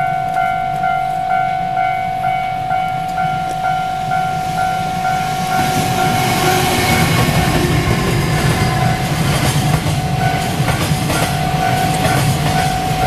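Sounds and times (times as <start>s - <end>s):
level crossing bell ringing: 0.0s - 8.0s
freight train rumble: 1.8s - 13.0s.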